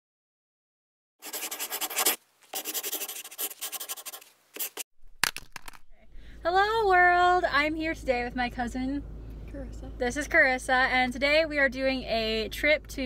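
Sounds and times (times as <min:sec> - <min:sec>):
pen scribbling on paper: 0:01.2 - 0:04.8.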